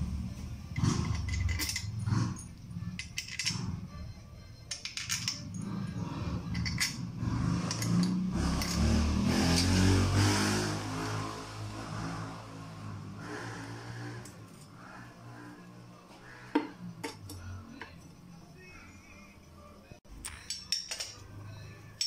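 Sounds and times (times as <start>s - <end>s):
vehicle engine passing by: 0.0s - 2.6s, 5.6s - 16.5s
metallic clinks of loose bolts: 1.0s - 2.0s, 2.9s - 3.8s, 4.7s - 5.7s, 6.5s - 7.1s, 20.2s - 21.3s.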